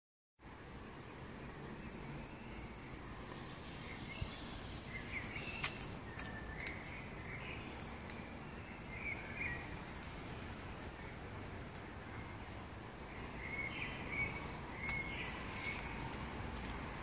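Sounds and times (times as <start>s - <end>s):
low outdoor rumble: 0.4s - 17.0s
birds chirping and singing: 1.4s - 17.0s.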